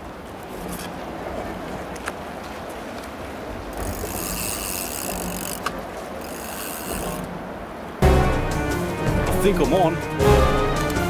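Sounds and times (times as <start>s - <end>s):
fishing reel whirring: 3.8s - 7.3s.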